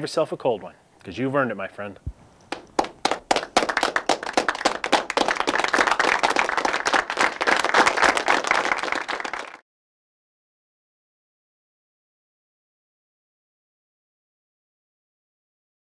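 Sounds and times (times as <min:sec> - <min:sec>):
crowd applauding: 0:02.5 - 0:09.6.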